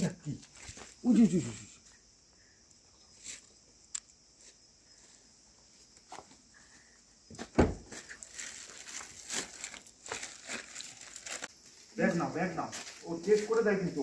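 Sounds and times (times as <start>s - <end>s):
bags knocking and rustling: 7.4s - 11.6s
loud thump: 7.5s - 7.9s.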